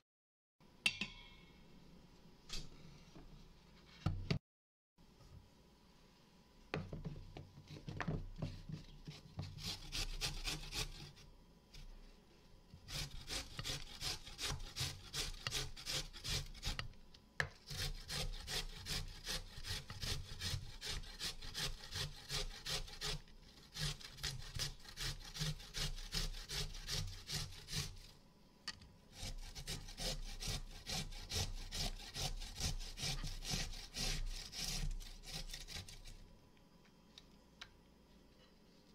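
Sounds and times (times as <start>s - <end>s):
ginger grated on metal grater: 9.1s - 11.2s, 12.9s - 16.9s, 17.6s - 28.1s, 29.1s - 36.2s.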